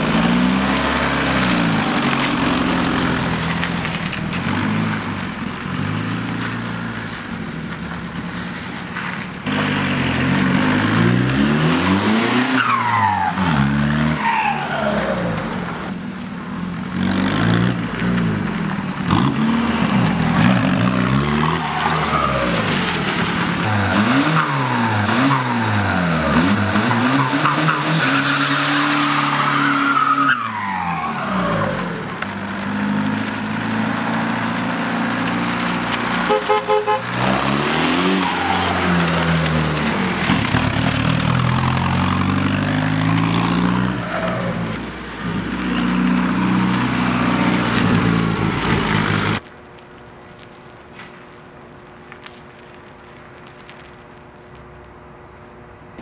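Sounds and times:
car engine revving: 0:09.4 - 0:15.9, 0:16.8 - 0:49.4.

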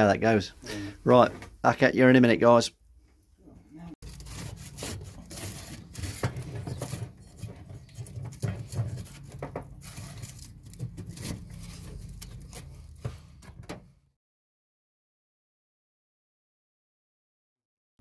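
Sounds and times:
hand rubbing foil: 0:04.0 - 0:13.4
small knocks: 0:05.6 - 0:11.5.

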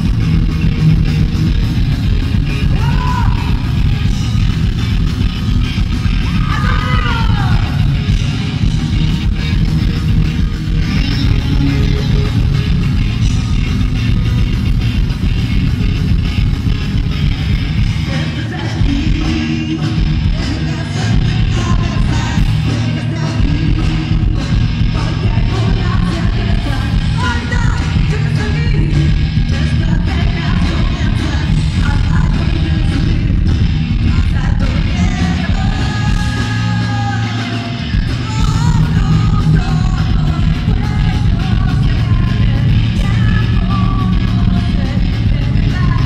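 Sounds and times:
electric guitars: 0:00.0 - 0:46.0
live rock band playing: 0:00.0 - 0:46.0
woman singing: 0:06.2 - 0:08.2, 0:18.0 - 0:46.0.

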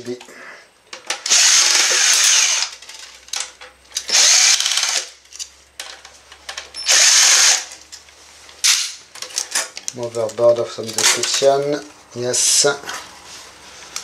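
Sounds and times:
electric screwdriver running: 0:01.3 - 0:02.7, 0:04.1 - 0:05.0, 0:06.9 - 0:07.7.

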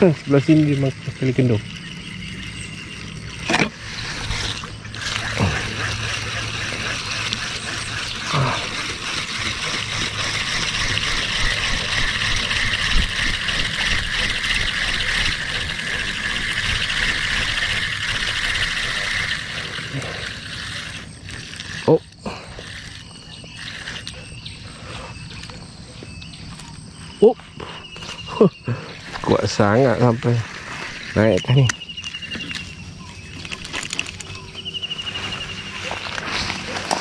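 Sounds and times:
fishing reel whirring: 0:00.0 - 0:27.1, 0:27.9 - 0:37.0.

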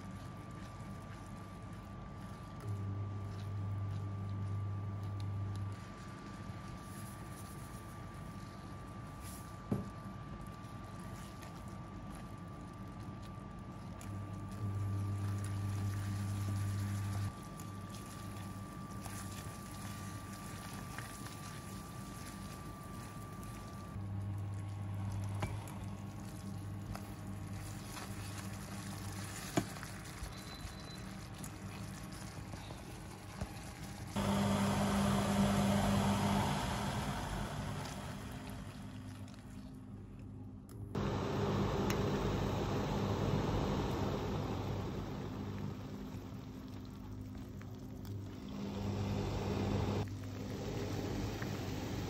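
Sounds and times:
low electric hum: 0:00.0 - 0:52.0.

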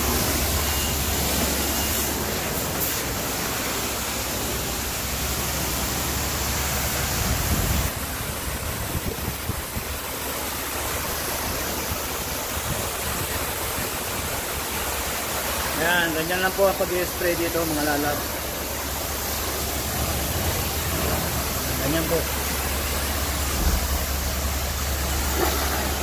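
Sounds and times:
pressure washer spraying water: 0:00.0 - 0:26.0
heavy low rumble: 0:18.4 - 0:26.0.

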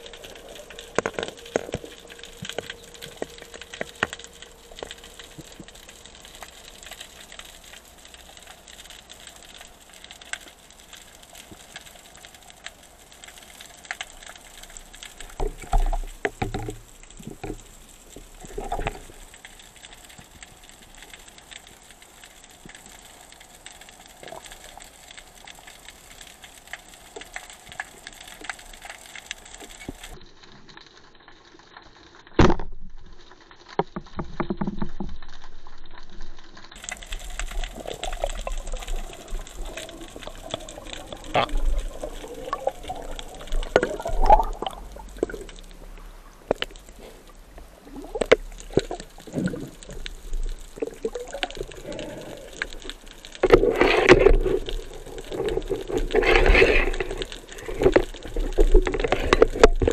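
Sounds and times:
faint underwater hiss: 0:00.0 - 0:30.2, 0:36.8 - 0:59.9
small clicks: 0:00.0 - 0:35.4, 0:36.6 - 0:59.9
water sloshing and splashing: 0:36.8 - 0:59.9.

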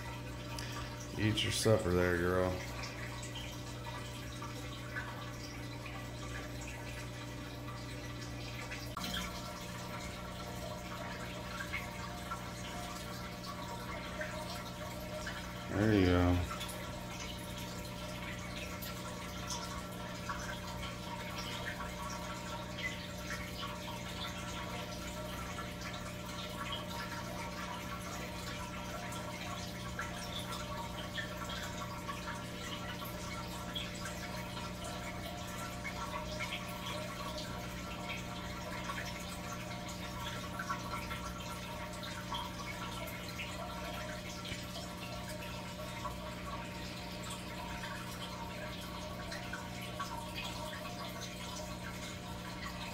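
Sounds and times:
low electric hum: 0:00.0 - 0:52.9
water trickling and dripping: 0:00.0 - 0:52.9.

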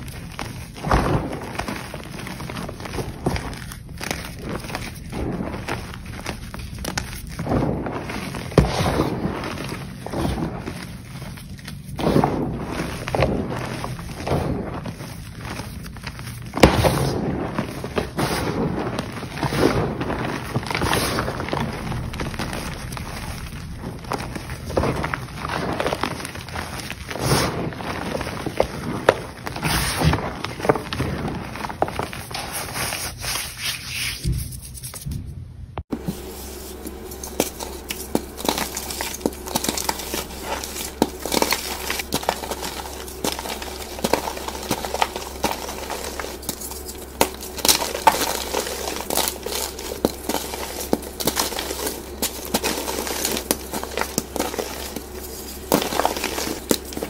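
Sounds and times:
chalk being crushed by hand: 0:00.0 - 0:35.2, 0:35.9 - 0:57.0.

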